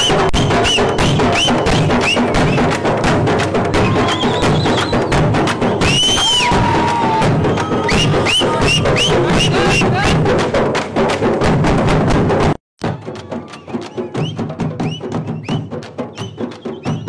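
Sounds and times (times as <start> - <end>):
whistle-like chirps: 0.0 - 2.7, 3.8 - 6.6, 7.4 - 10.2, 13.6 - 17.0
frame drums beaten fast: 0.0 - 17.0.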